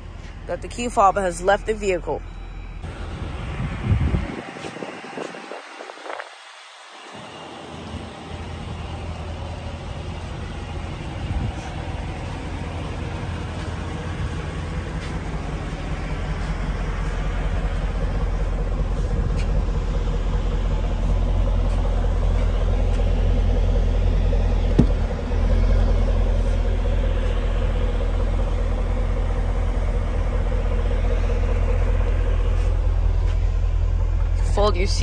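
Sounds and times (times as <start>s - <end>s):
car engine idling: 0.0s - 35.0s.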